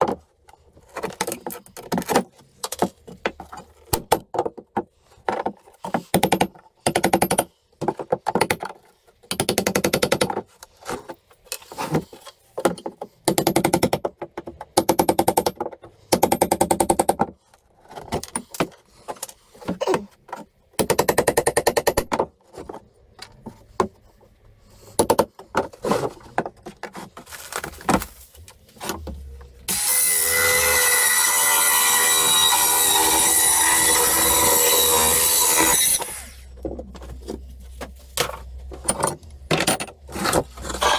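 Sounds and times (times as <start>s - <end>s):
circular saw cutting wood: 29.7s - 36.5s.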